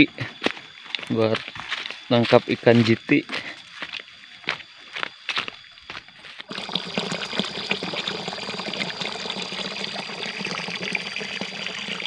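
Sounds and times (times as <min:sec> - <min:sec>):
water pouring from pipe into pool: 0:06.4 - 0:12.0.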